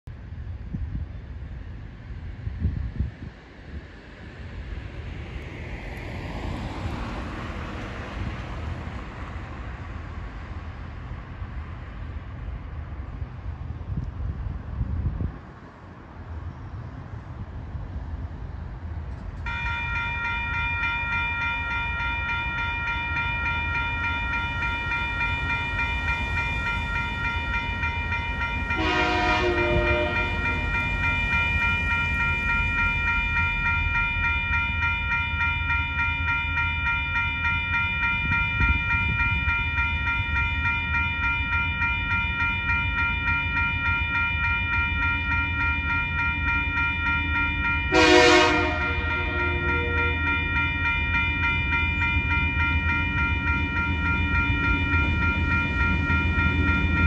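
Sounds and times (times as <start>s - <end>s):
level crossing bells ringing: 19.5s - 57.0s
diesel locomotive horn: 28.7s - 30.9s, 47.9s - 50.4s.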